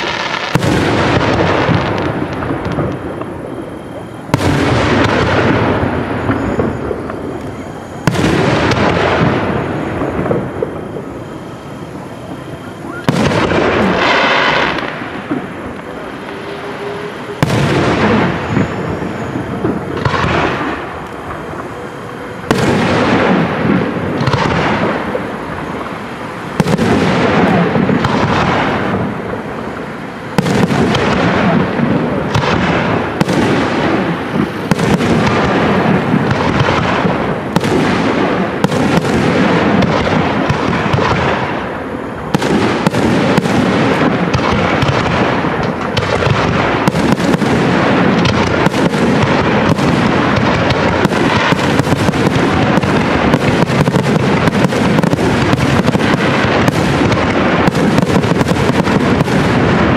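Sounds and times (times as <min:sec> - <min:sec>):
fireworks bursting: 0:00.0 - 0:59.9.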